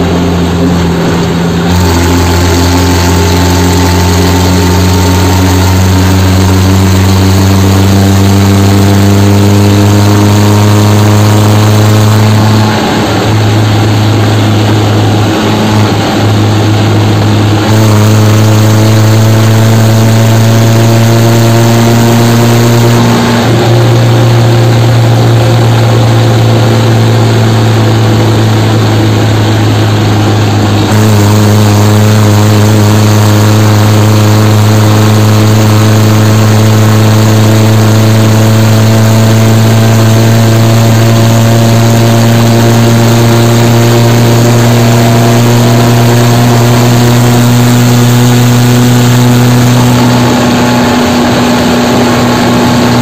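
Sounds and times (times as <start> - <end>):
road noise: 0.0 - 53.0
tractor diesel engine running: 0.0 - 53.0.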